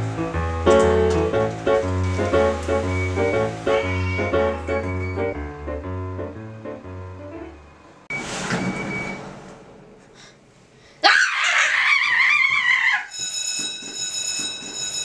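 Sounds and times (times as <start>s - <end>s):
high ringing tone: 2.0s - 5.4s, 13.0s - 15.0s
noisy burst: 7.6s - 11.0s
person screaming: 11.0s - 13.1s.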